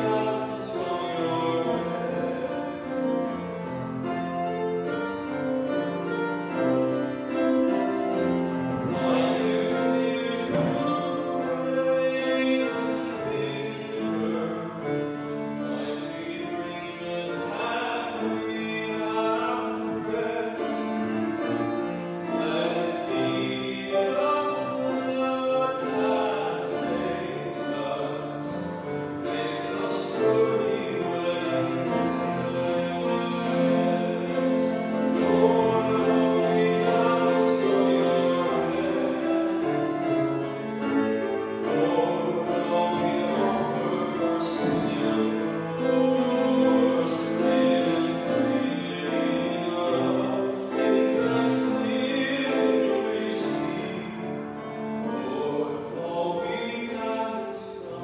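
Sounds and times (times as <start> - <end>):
church hymn singing: 0.0 - 58.0
keyboard accompaniment: 0.0 - 58.0.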